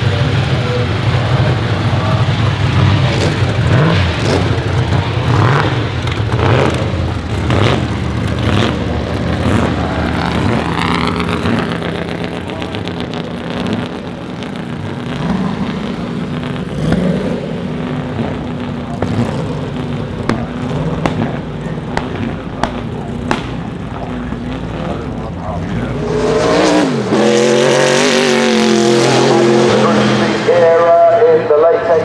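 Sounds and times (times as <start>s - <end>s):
racing car engines at low revs: 0.0s - 32.0s
short sharp pops: 21.9s - 23.6s.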